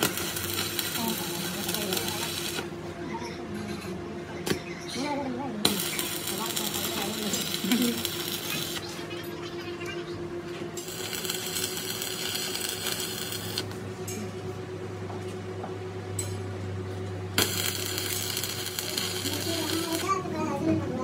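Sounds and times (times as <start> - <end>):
welding arc crackling and hissing: 0.0 - 2.8, 5.6 - 9.0, 10.8 - 13.8, 17.3 - 20.4
steady low hum: 0.0 - 21.0.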